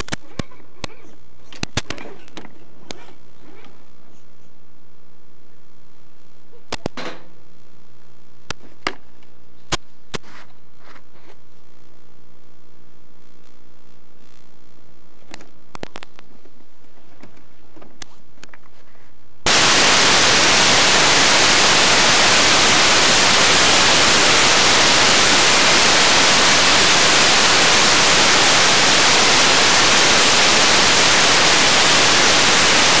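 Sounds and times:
loud static hiss: 0:03.2 - 0:06.5, 0:07.2 - 0:08.6, 0:09.3 - 0:16.8, 0:19.2 - 0:33.0.

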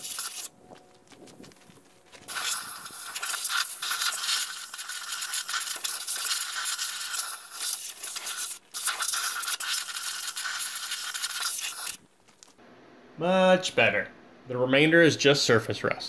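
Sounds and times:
compressed air hissing: 0:02.3 - 0:12.1.

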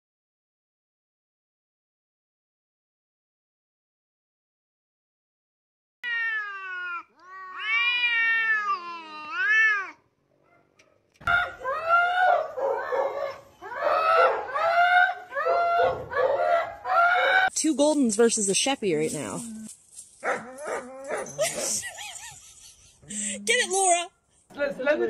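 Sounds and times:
cats yowling: 0:06.0 - 0:10.0
dog howling whines: 0:11.3 - 0:17.5, 0:20.4 - 0:21.4.

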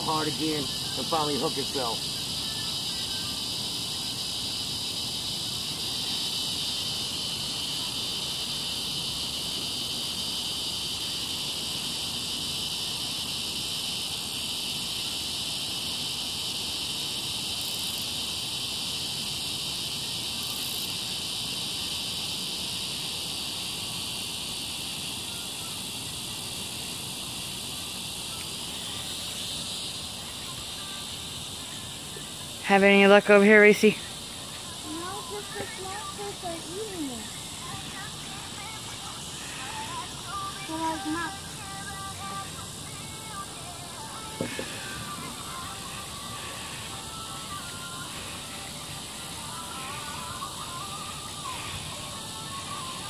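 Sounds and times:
insects trilling: 0:00.0 - 0:53.0.

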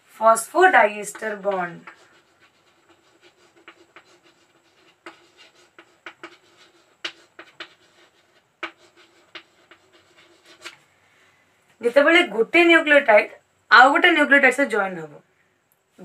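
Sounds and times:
pen scratching on paper: 0:00.5 - 0:10.8.

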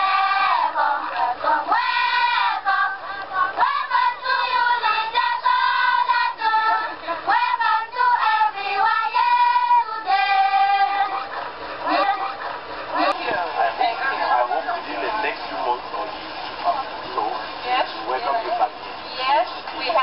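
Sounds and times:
children singing: 0:00.0 - 0:12.4.

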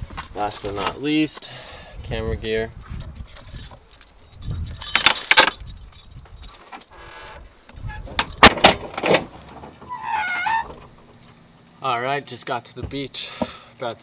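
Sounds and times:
keys jangling: 0:03.0 - 0:07.0.

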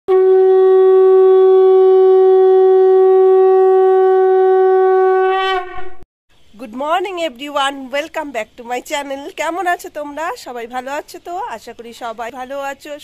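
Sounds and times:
conch shell blown: 0:00.1 - 0:06.0.

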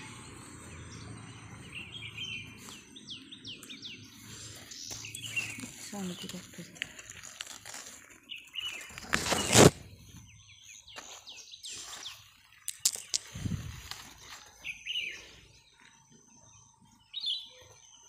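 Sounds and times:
faint outdoor noise: 0:00.0 - 0:18.0
small birds chirping: 0:00.0 - 0:18.0
leaves rustling close up: 0:04.0 - 0:10.2, 0:13.1 - 0:15.4.

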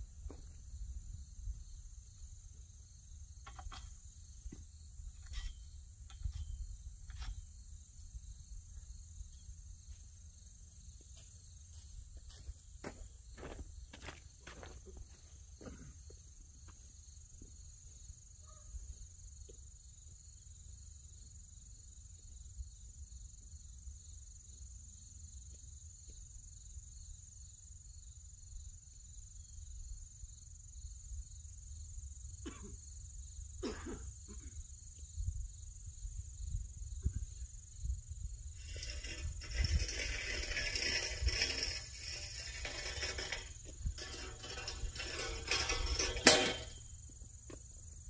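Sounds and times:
crickets chirping: 0:00.0 - 0:48.0
footsteps: 0:11.1 - 0:15.9
wind rumble on microphone: 0:35.1 - 0:41.7.

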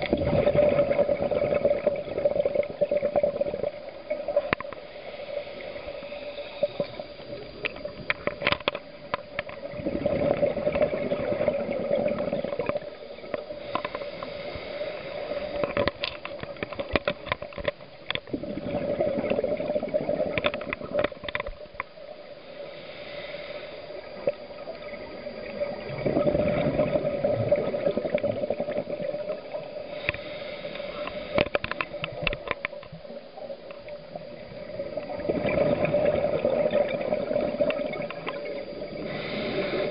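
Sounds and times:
gurgling exhaled bubbles: 0:00.0 - 0:04.8, 0:05.6 - 0:14.4, 0:15.0 - 0:21.7, 0:24.0 - 0:30.2, 0:30.9 - 0:39.9
steady hum: 0:00.0 - 0:39.9
regulator inhalation hiss: 0:04.7 - 0:08.2, 0:12.5 - 0:15.9, 0:22.1 - 0:25.9, 0:29.2 - 0:32.3, 0:37.4 - 0:39.9.

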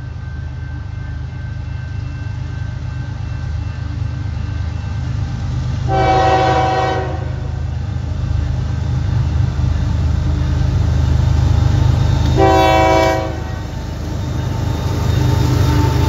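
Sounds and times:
low rumble of locomotive engine: 0:00.0 - 0:16.0
locomotive air horn blasts: 0:05.9 - 0:07.5, 0:12.4 - 0:13.7.

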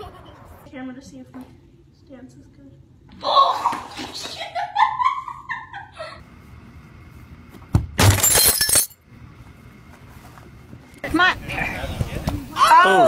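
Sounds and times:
glass shattering: 0:08.0 - 0:09.0.

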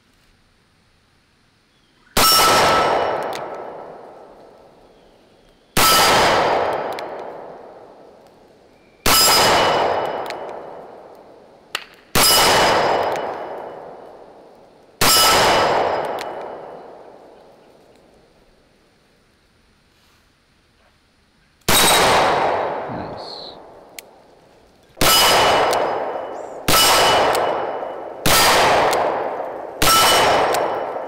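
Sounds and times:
revolver gunshots: 0:02.2 - 0:04.4, 0:05.8 - 0:08.1, 0:09.0 - 0:17.6, 0:21.7 - 0:24.2, 0:25.0 - 0:31.0.

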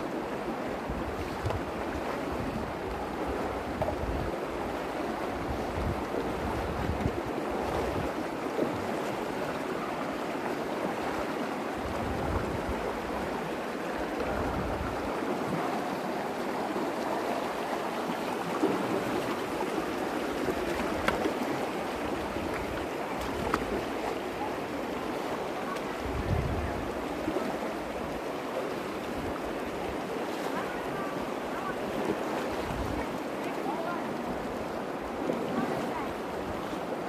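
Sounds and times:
water rushing over stones: 0:00.0 - 0:37.0
wind buffeting microphone: 0:00.8 - 0:04.6, 0:05.4 - 0:08.3, 0:11.7 - 0:15.6, 0:25.9 - 0:27.3, 0:31.9 - 0:33.1.

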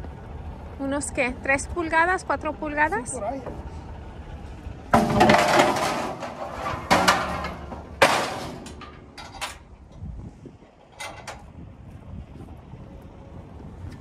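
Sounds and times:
metal ramp clanging: 0:04.9 - 0:10.0, 0:10.7 - 0:11.5.

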